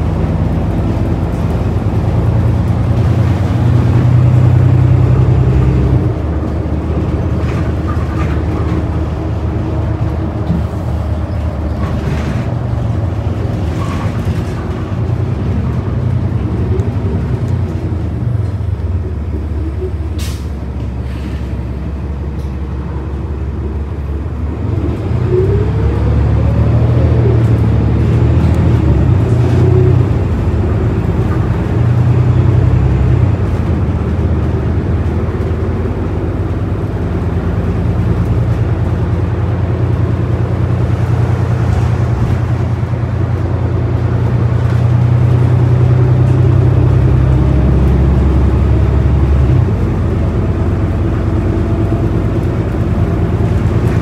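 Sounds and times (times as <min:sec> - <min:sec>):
bus engine drone: 0:00.0 - 0:54.0
rising transmission whine: 0:21.7 - 0:54.0.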